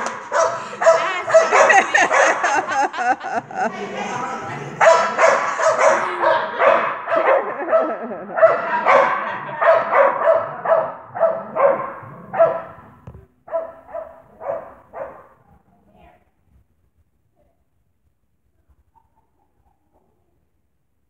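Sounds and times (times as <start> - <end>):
small dog barking: 0.2 - 2.6, 4.8 - 12.8, 13.5 - 15.3.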